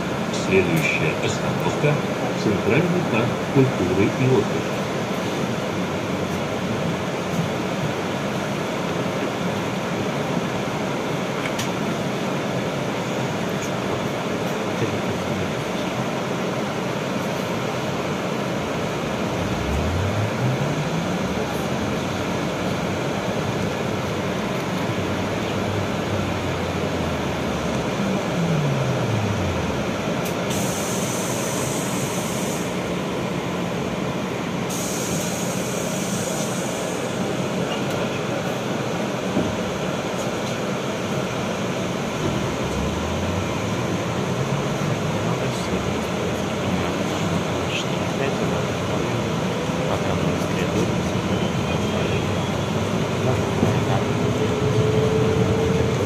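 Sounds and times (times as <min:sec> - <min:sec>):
trolleybus interior rumble and hum: 0:00.0 - 0:56.0
electric traction drive whine: 0:17.7 - 0:38.1, 0:40.8 - 0:56.0
high hiss: 0:30.5 - 0:32.7.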